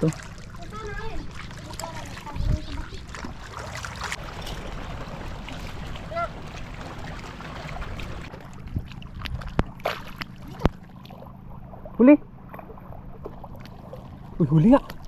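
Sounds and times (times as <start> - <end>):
water noise at sea: 0.0 - 15.0
wind rumbling on microphone: 2.0 - 3.4.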